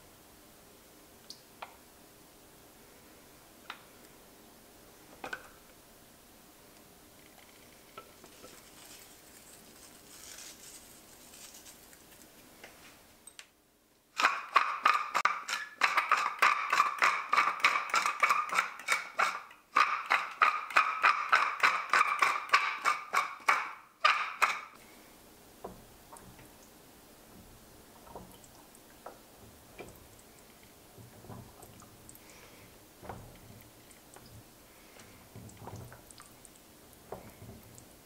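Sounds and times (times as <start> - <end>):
pepper mill grinding: 8.1 - 12.3, 14.2 - 24.6.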